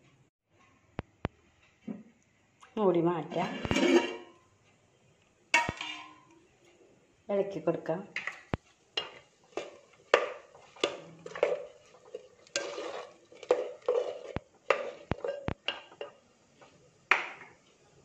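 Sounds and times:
ladle scraping clay pot: 3.3 - 4.3, 8.3 - 16.2.

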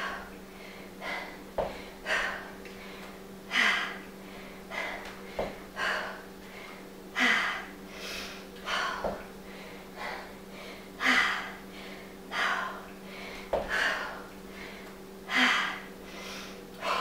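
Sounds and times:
woman breathing hard: 0.0 - 17.0
foot thudding on floor: 1.6 - 1.9, 5.3 - 5.6, 9.0 - 9.2.

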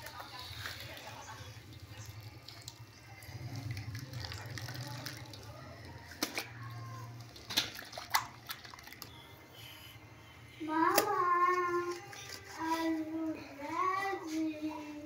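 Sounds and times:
water sloshing in metal basin: 0.9 - 6.6, 7.2 - 9.2.

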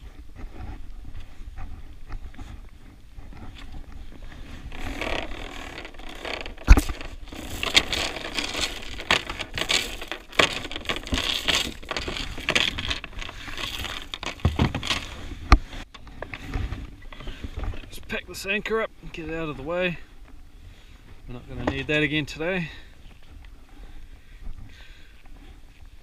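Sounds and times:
rope rustling and scraping: 0.0 - 22.1
anchor chain clinking: 4.7 - 15.2.

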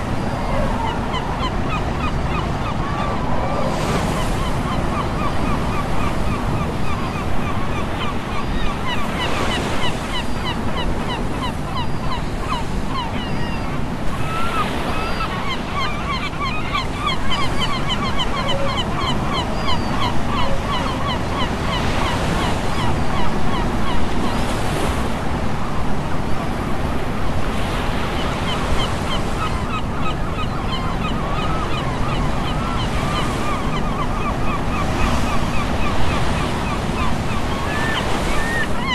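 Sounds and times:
seabirds chirping: 0.0 - 23.8, 27.7 - 38.9
ocean surf washing ashore: 0.0 - 30.4.

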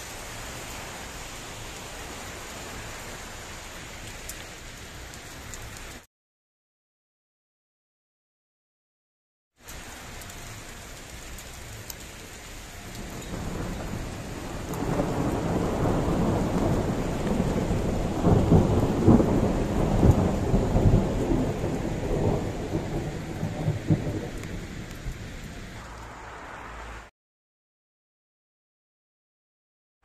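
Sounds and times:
steady rain: 0.0 - 6.1, 9.6 - 27.1
thunder rumbling and cracking: 12.9 - 26.0.

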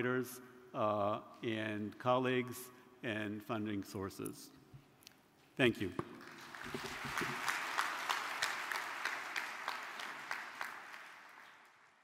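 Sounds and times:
large audience applauding: 6.2 - 12.0.

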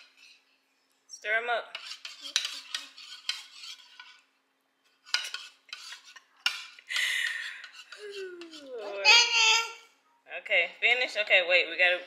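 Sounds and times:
fork beating eggs in bowl: 0.0 - 0.5, 1.7 - 9.0.

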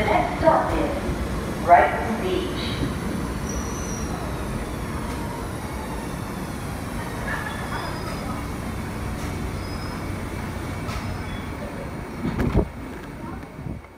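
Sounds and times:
train wheels rumbling on rails: 0.0 - 13.9
faint brake squeals: 3.4 - 4.4, 7.2 - 8.4, 9.5 - 10.2, 10.8 - 11.7.

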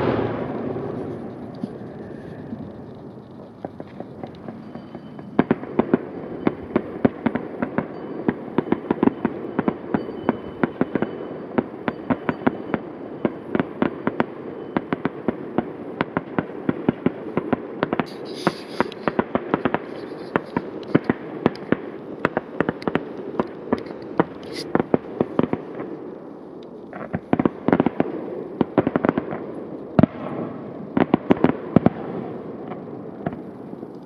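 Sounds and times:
firework bangs and cracks: 0.0 - 34.0
rumble of distant bursts: 0.0 - 34.0
brief hiss: 18.1 - 19.1.

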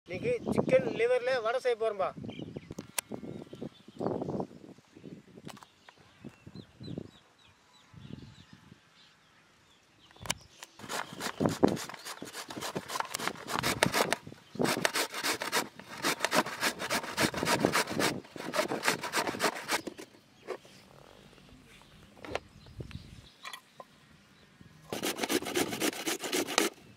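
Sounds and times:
carrots grated on metal grater: 10.8 - 20.0, 24.9 - 26.8.

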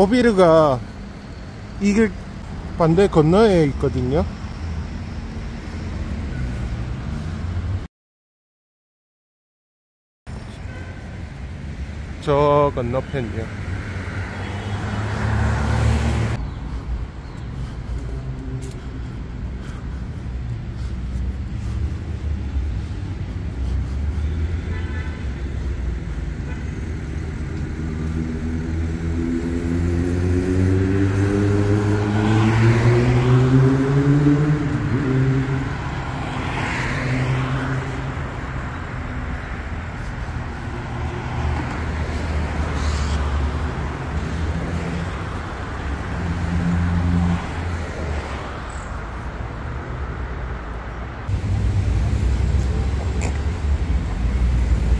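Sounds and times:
traffic engine rumble: 0.0 - 7.9, 10.3 - 54.9
vehicles passing: 0.0 - 7.9, 10.3 - 54.9
engine accelerating past: 28.4 - 37.6.

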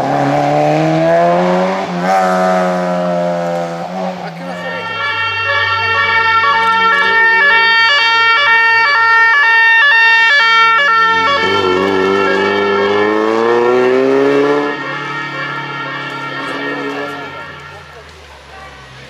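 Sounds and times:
car engine accelerating: 0.0 - 9.1, 10.6 - 19.0
two-tone siren: 3.7 - 17.9.

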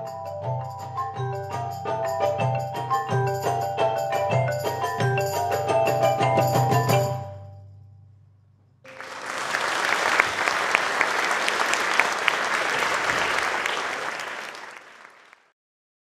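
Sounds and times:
audience applauding: 8.9 - 15.6.

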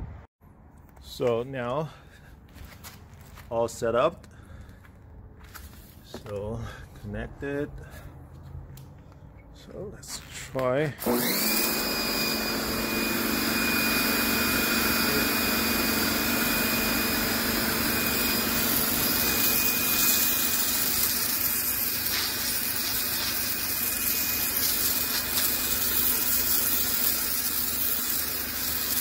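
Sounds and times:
pressure washer motor humming: 11.0 - 29.0
water jet hissing on concrete: 17.7 - 29.0.

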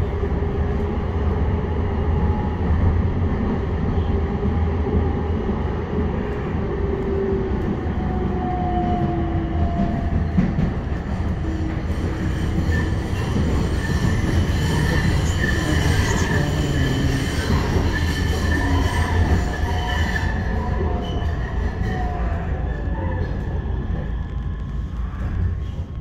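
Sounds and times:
wheels rumbling on track: 2.2 - 26.0
high-pitched wheel squeal: 11.8 - 24.1.

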